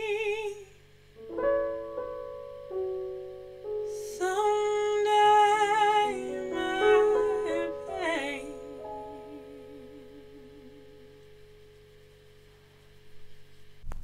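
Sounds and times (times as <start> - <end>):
person singing with vibrato: 0.0 - 0.9, 3.9 - 11.2
keyboard chords: 1.1 - 13.0.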